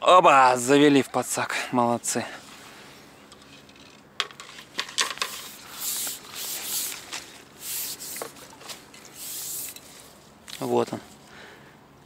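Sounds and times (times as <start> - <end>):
landing net rustling in grass: 4.4 - 10.8.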